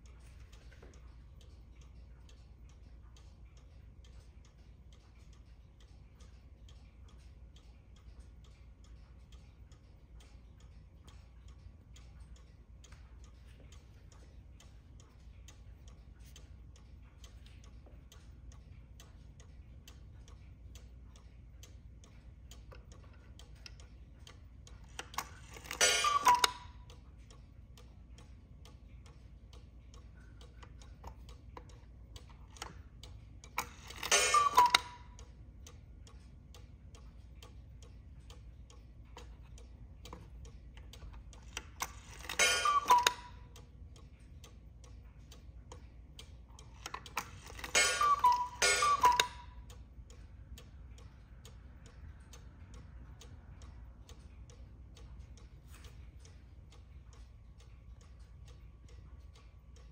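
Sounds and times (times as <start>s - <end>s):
clock ticking: 0.0s - 59.9s.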